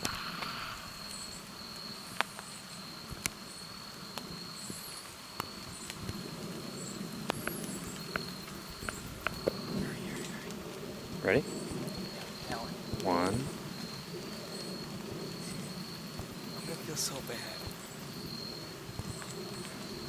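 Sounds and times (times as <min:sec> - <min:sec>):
insects trilling drone: 0:00.0 - 0:20.0
faint high chirps: 0:11.2 - 0:20.0.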